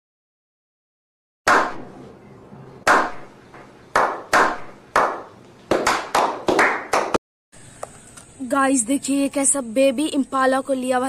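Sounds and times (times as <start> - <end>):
echoing hand claps: 1.5 - 1.9, 2.9 - 7.2.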